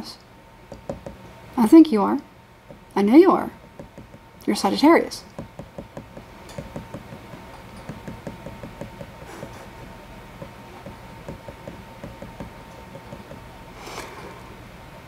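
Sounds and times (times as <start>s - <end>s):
soft irregular knocks: 0.7s - 1.2s, 2.6s - 3.0s, 3.6s - 4.3s, 5.2s - 13.5s.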